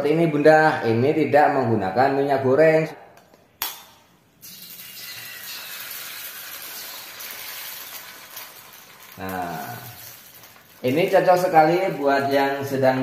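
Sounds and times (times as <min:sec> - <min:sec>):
egg sizzling in hot wok: 0:04.4 - 0:12.3.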